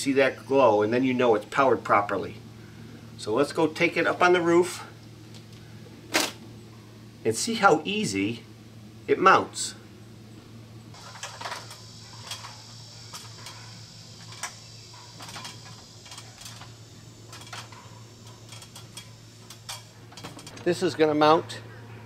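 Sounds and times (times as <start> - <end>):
footsteps clanking on metal ladder: 11.0 - 20.8.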